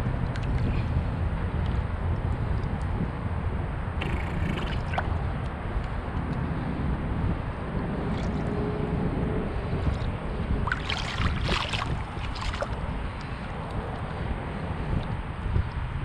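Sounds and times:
wind buffeting microphone: 0.0s - 16.0s
fish splashing at water surface: 4.0s - 5.2s, 10.6s - 12.9s.

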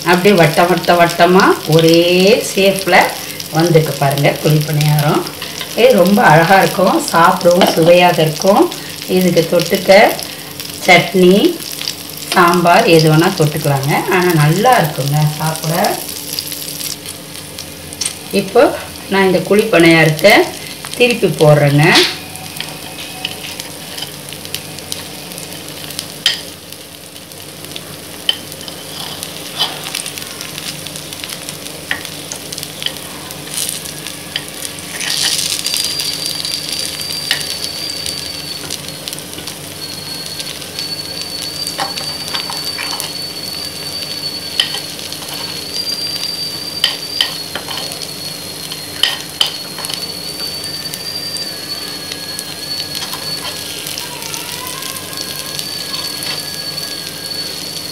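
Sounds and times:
batter sizzling in oil: 0.0s - 57.9s
thin high whistle: 21.8s - 23.8s, 32.6s - 57.9s.

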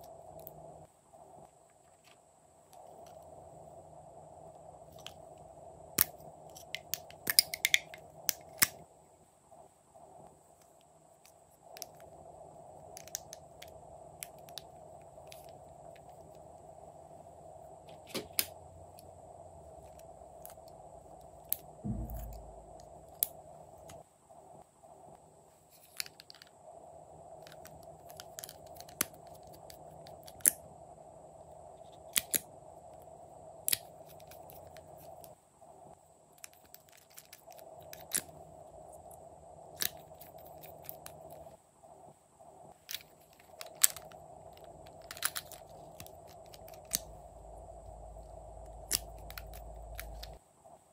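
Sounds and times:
faint steady hum: 0.0s - 50.9s
low thud: 21.8s - 22.8s.

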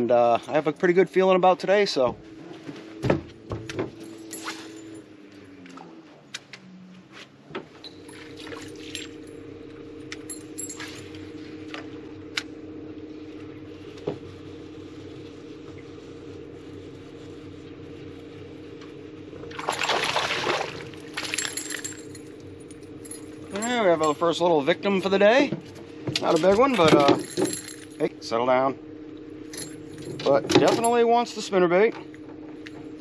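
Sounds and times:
fish splashing at surface: 19.5s - 21.4s.

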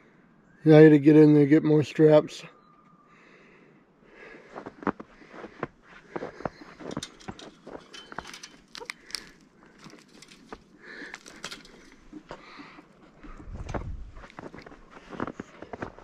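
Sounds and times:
footsteps crunching in snow: 13.1s - 16.0s.

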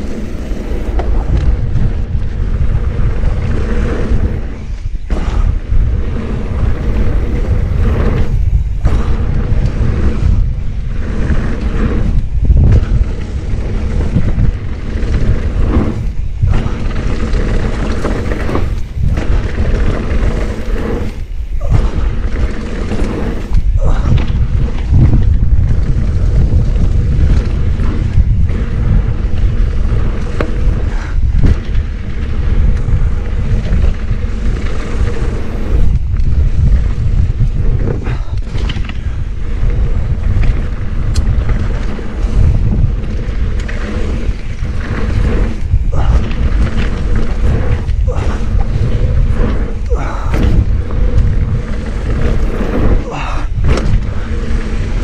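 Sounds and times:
bike thumps and rattles: 0.0s - 55.0s
knobby tyres on dirt: 0.0s - 55.0s
wind buffeting microphone: 0.0s - 55.0s.

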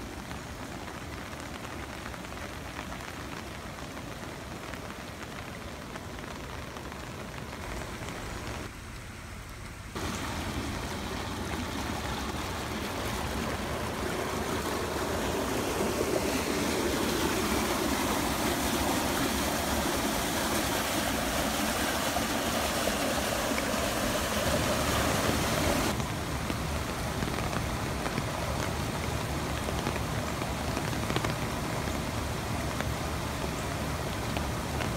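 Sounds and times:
rain on a wet road: 0.0s - 34.9s
runoff pouring down a spillway: 0.0s - 34.9s
water rushing around a drain: 7.0s - 34.9s.

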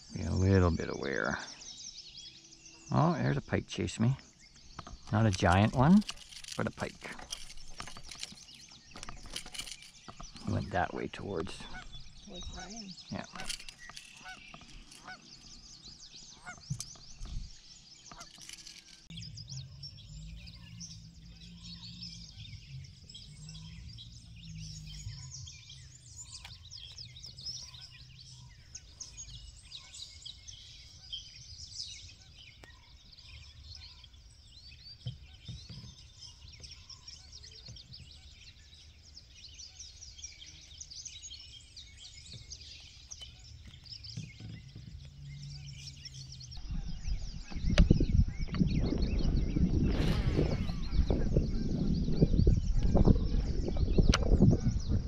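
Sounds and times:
birds chirping in chorus: 0.0s - 55.0s.

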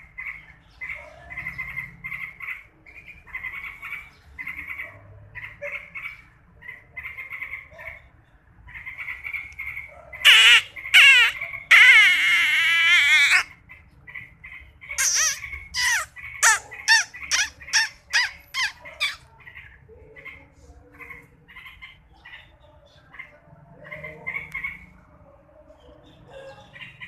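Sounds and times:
birds squawking: 0.0s - 8.1s, 8.7s - 20.4s
soft bird chirps: 15.0s - 20.4s.

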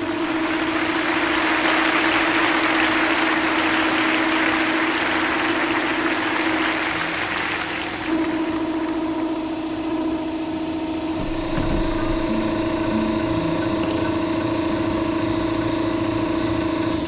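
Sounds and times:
air compressor hum: 0.0s - 17.0s
deep low rumble: 11.2s - 14.9s.

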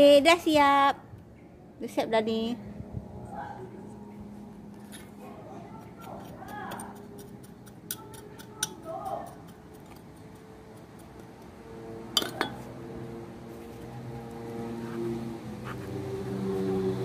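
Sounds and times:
hard objects clinking together: 12.2s - 12.6s.

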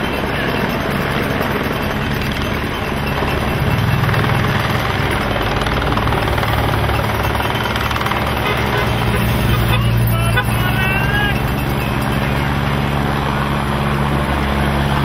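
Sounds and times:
motorcycles and cars driving past: 1.9s - 15.0s.

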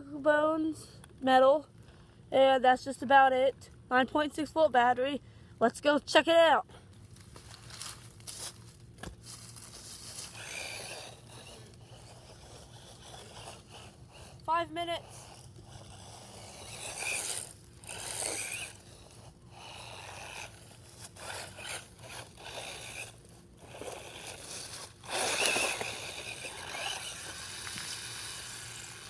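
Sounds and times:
wheels crunching through dirt: 7.0s - 29.0s
electric motor whining: 7.4s - 29.0s.

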